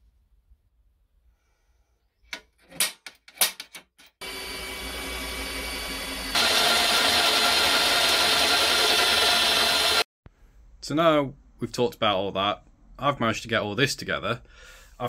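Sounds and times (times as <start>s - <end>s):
cordless drill drilling metal: 4.2s - 10.1s.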